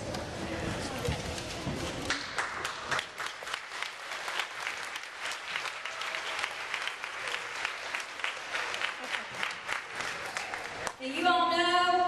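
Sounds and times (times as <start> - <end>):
children applauding: 2.0 - 11.0.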